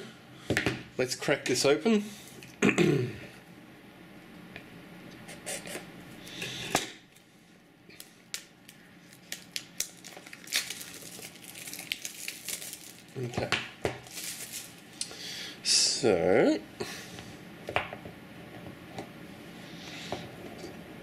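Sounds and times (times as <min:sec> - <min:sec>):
shrink-wrap crinkling: 0:07.9 - 0:15.0.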